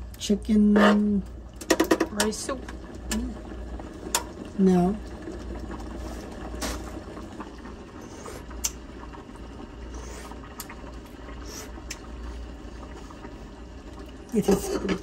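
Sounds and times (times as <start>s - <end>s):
soup simmering: 0.0s - 15.0s.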